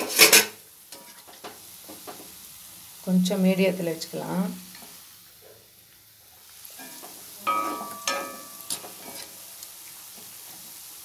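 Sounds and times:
spatula scraping pan: 0:00.0 - 0:02.2, 0:06.7 - 0:09.4
batter deep-frying in oil: 0:00.0 - 0:11.0.

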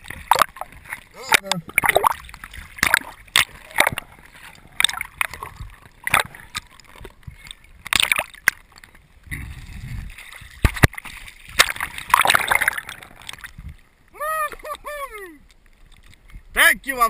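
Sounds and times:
sharp knocks and clicks underwater: 0:00.0 - 0:13.9, 0:15.5 - 0:16.5
water bubbling and hissing: 0:09.2 - 0:13.8.

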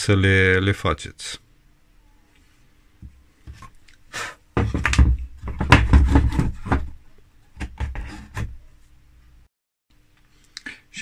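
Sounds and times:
wood knocking and scraping: 0:03.0 - 0:03.8, 0:04.6 - 0:07.0, 0:07.6 - 0:08.6.

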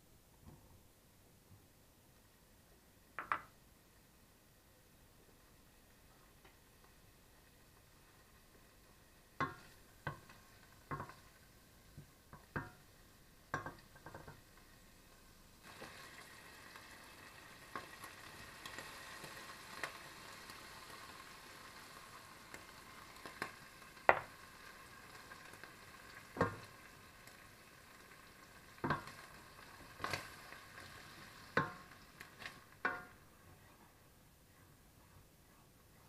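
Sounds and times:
wooden spoon knocking on pot: 0:03.2 - 0:03.5, 0:09.4 - 0:10.3, 0:10.9 - 0:11.2, 0:12.4 - 0:12.8, 0:13.5 - 0:14.4, 0:24.1 - 0:24.3, 0:28.8 - 0:29.1, 0:31.6 - 0:31.8, 0:32.8 - 0:33.1
bacon sizzling in oil: 0:05.2 - 0:33.4.

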